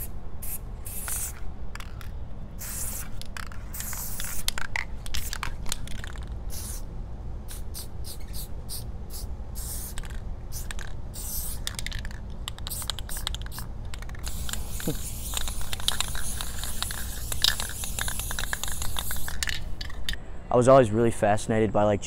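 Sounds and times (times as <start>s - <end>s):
aerosol spray can hissing: 0.0s - 2.0s, 2.6s - 6.8s, 7.5s - 20.0s
spray can clicks: 9.9s - 20.2s.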